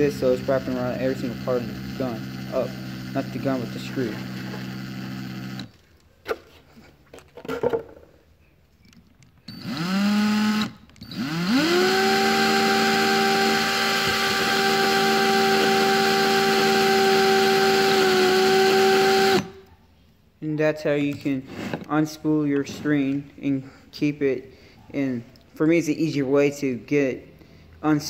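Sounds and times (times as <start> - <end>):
drill motor spinning: 0.0 - 5.8, 9.5 - 19.6.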